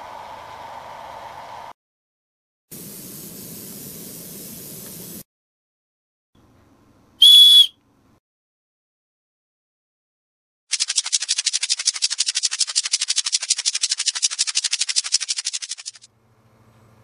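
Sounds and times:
paint spraying hiss: 2.7s - 5.2s
small plastic whistle tone: 7.2s - 7.8s.

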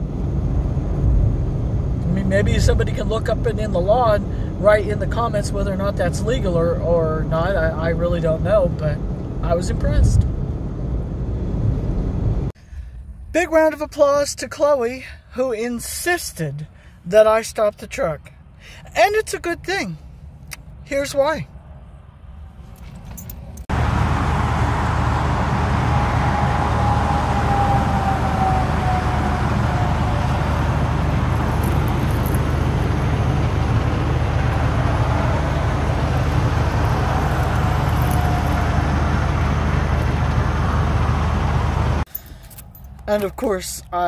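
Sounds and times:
loud road traffic hum: 0.0s - 13.2s, 20.0s - 43.4s
passing vehicle whine: 0.0s - 13.3s, 21.5s - 43.0s.

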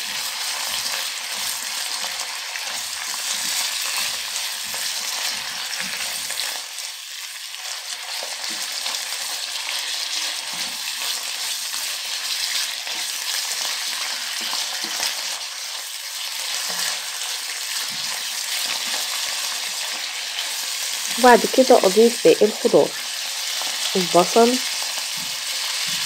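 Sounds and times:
meat sizzling in oil: 0.0s - 26.0s.

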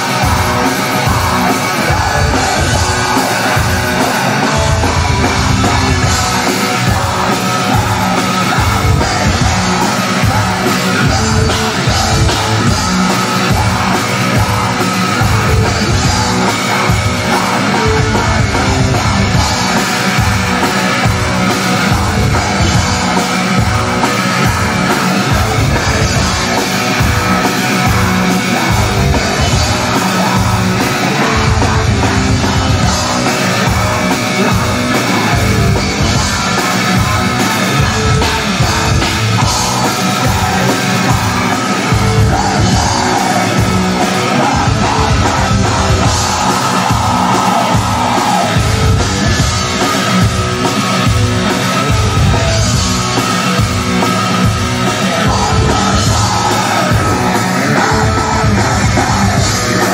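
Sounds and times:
black metal band playing live: 0.0s - 59.9s.

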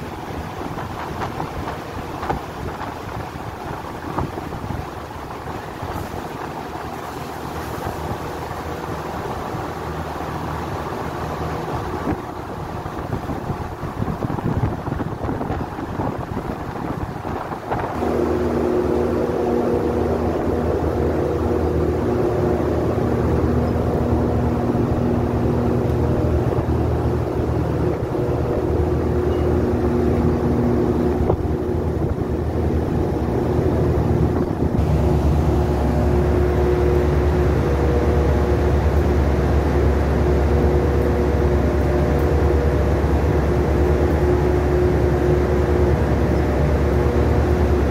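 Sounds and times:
wind buffeting microphone: 0.0s - 7.1s, 10.6s - 47.9s
heavy machinery droning: 0.0s - 47.9s
deep low hum: 17.3s - 47.9s.

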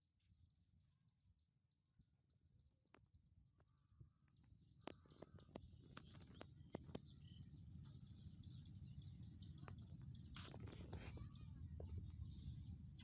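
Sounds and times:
small ticks: 2.9s - 7.2s.

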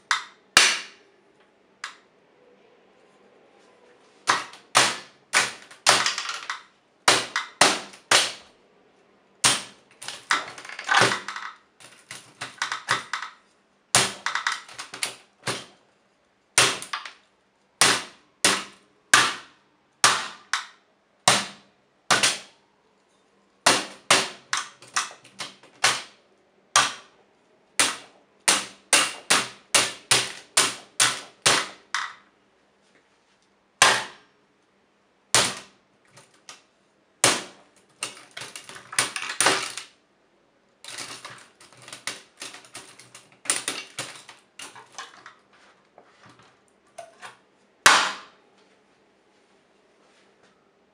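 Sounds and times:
hammer striking typewriter keys: 27.8s - 32.1s, 40.9s - 45.0s
typewriter rattle: 40.8s - 45.3s.

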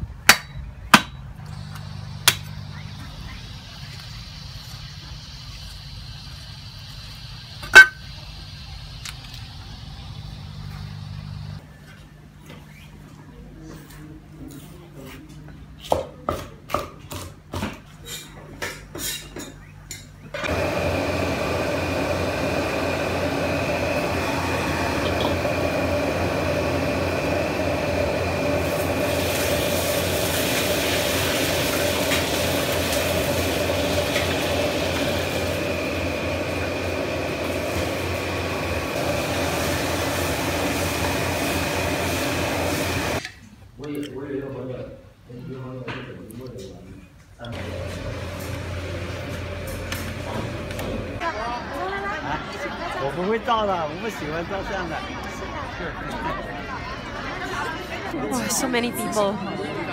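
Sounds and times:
gas wok burner roaring: 1.4s - 11.6s, 20.4s - 43.2s, 47.5s - 51.3s
food frying in wok: 24.0s - 43.2s.

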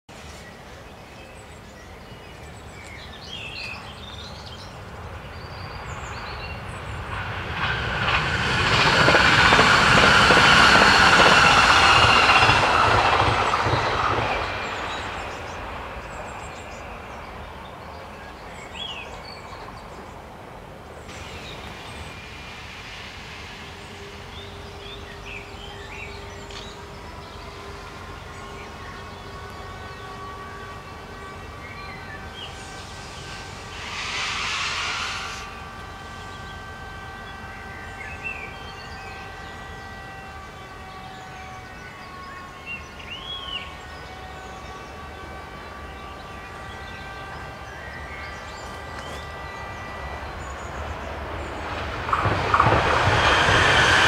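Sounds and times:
faint rising whines: 21.1s - 25.0s.

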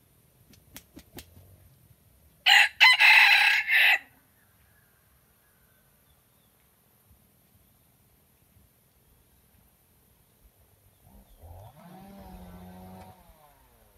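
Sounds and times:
rooster flapping wings: 0.4s - 1.5s
rooster crowing: 2.4s - 4.1s.

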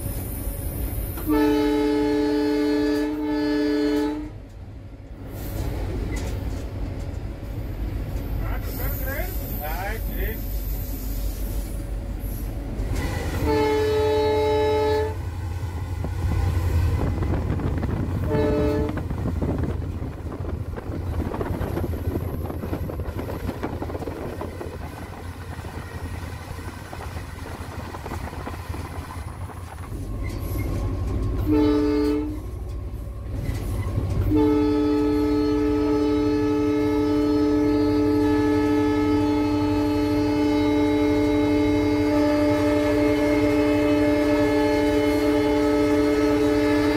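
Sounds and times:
engine and wheels rumbling: 0.0s - 46.9s
locomotive air horn: 1.2s - 4.4s, 13.0s - 15.4s, 18.2s - 19.2s, 31.3s - 32.6s, 34.2s - 46.9s.

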